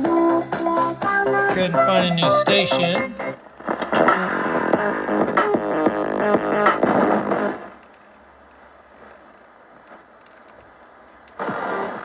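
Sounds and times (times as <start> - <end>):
music from radio: 0.0 - 7.8, 11.3 - 12.0
radio static hiss: 1.6 - 5.1, 6.8 - 12.0.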